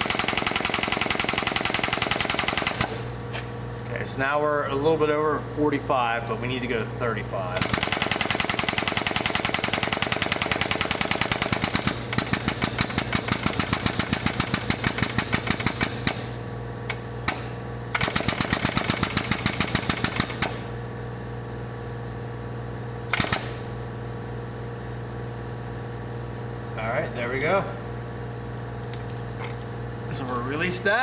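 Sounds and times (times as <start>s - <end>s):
air pump chattering: 0.0s - 3.0s, 7.6s - 20.6s, 23.1s - 23.6s
steady low hum: 1.3s - 31.0s.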